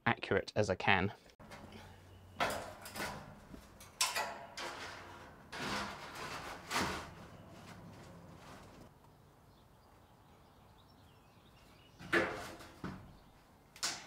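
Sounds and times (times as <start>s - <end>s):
corrugated iron scraping and rattling: 1.4s - 8.9s, 12.0s - 13.2s.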